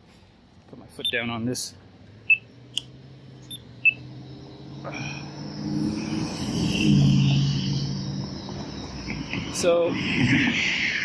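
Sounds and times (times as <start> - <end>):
passing vehicle engine and tyres: 1.1 - 11.0
short high-pitched beeps: 2.3 - 2.5, 3.5 - 4.0.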